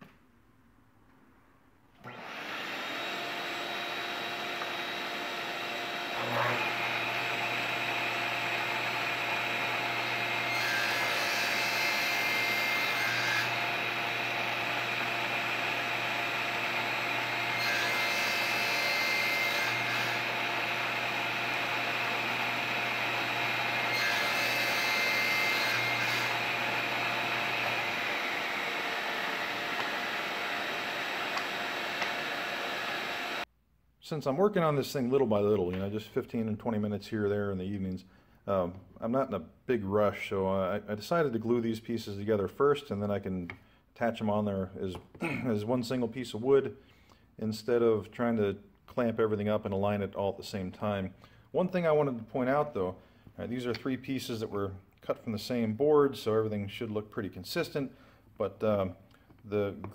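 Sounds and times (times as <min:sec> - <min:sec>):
dust collector running: 0:02.0 - 0:33.4
saw blade cutting wood: 0:02.0 - 0:33.4
table saw running: 0:02.0 - 0:33.5.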